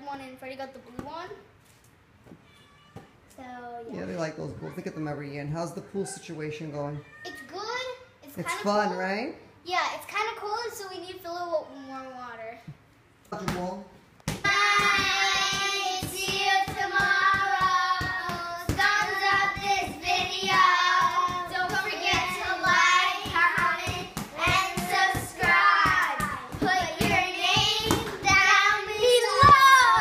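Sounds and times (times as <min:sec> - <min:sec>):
hand claps: 0:14.3 - 0:30.0
children singing: 0:14.5 - 0:30.0.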